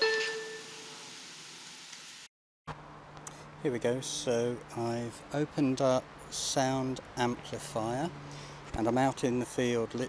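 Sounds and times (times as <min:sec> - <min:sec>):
train door chime: 0:00.0 - 0:00.9.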